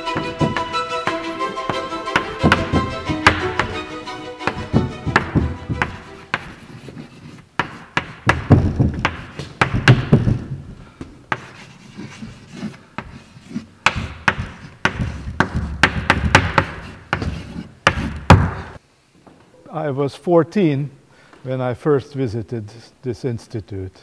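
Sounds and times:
chalk tapping on blackboard: 0:00.1 - 0:10.2, 0:11.3 - 0:18.8
chalk scratching: 0:04.4 - 0:08.3, 0:11.3 - 0:18.3.

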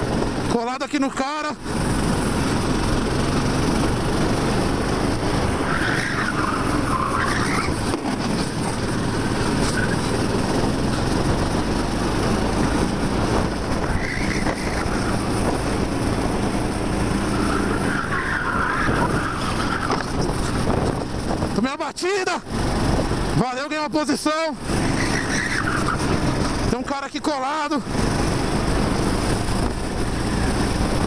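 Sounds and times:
kart engine running hard: 0:00.0 - 0:21.6, 0:22.4 - 0:23.4, 0:24.6 - 0:26.9, 0:27.8 - 0:31.0
tyres squealing: 0:05.4 - 0:08.6, 0:09.5 - 0:10.3, 0:13.8 - 0:15.4, 0:17.2 - 0:20.6, 0:24.8 - 0:26.4.

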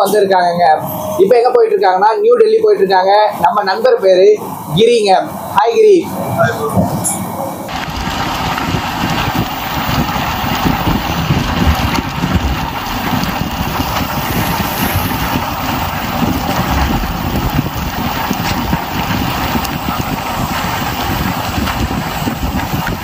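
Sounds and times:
train wheels clattering on rails: 0:06.4 - 0:23.0.

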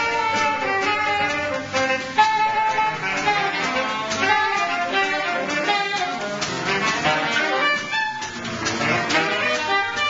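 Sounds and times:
saxophone ensemble playing: 0:00.0 - 0:10.0.

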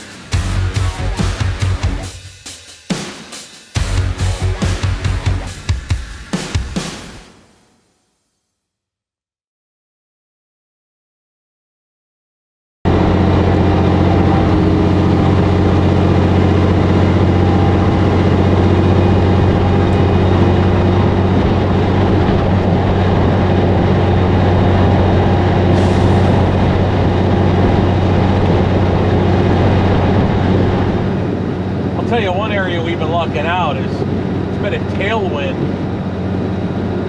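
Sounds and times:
truck diesel engine droning: 0:00.0 - 0:02.1, 0:03.8 - 0:05.6, 0:12.9 - 0:37.0
road noise: 0:00.0 - 0:02.2, 0:03.8 - 0:05.7, 0:12.9 - 0:37.0.

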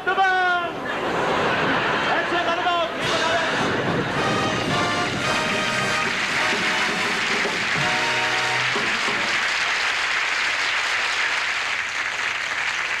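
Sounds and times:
band music: 0:02.9 - 0:09.6
audience applauding: 0:03.6 - 0:13.0.

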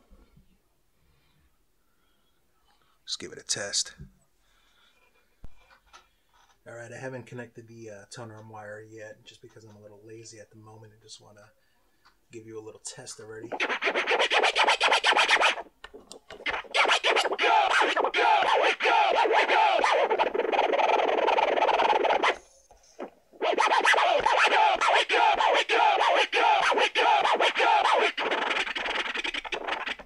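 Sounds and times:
vinyl scratching on turntable: 0:13.4 - 0:15.7, 0:16.3 - 0:22.4, 0:23.0 - 0:30.0.

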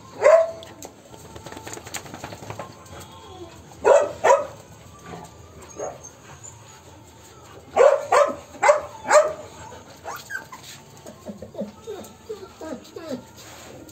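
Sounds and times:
dog barking: 0:00.2 - 0:00.6, 0:03.8 - 0:04.6, 0:07.8 - 0:09.4.

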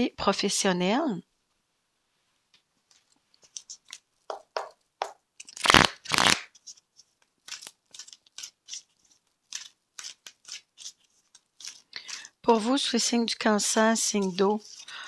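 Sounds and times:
cards shuffling: 0:05.4 - 0:15.0.

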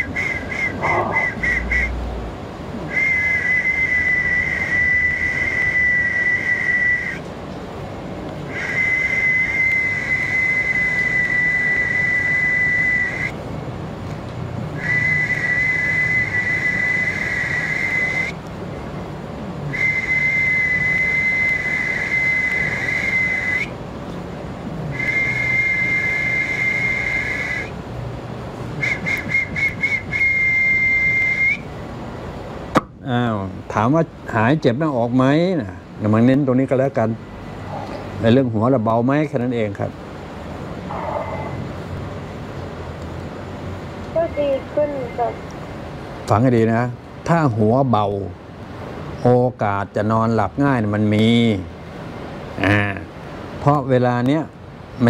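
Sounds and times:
man whistling high notes: 0:00.0 - 0:02.0, 0:02.9 - 0:07.2, 0:08.5 - 0:13.4, 0:14.8 - 0:18.4, 0:19.7 - 0:23.8, 0:24.9 - 0:27.8, 0:28.8 - 0:31.7.

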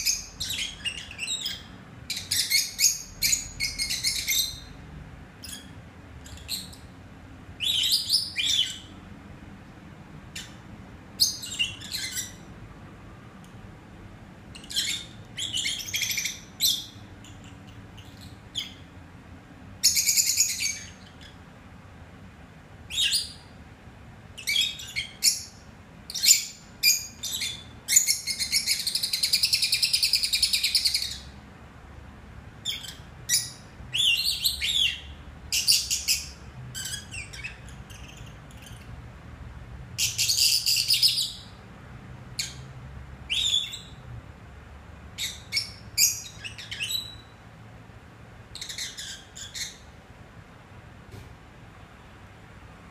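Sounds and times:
lovebirds chirping: 0:00.0 - 0:09.1, 0:10.2 - 0:12.6, 0:14.5 - 0:19.1, 0:19.8 - 0:21.7, 0:22.8 - 0:23.6, 0:24.3 - 0:31.4, 0:32.6 - 0:39.0, 0:40.0 - 0:41.6, 0:42.3 - 0:44.1, 0:45.1 - 0:47.5, 0:48.5 - 0:50.0.

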